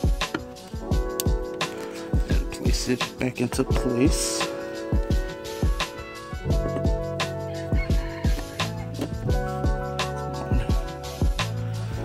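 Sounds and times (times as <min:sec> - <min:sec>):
held bass notes: 0:02.2 - 0:12.0
kick drum beat: 0:03.6 - 0:04.2, 0:06.4 - 0:07.2.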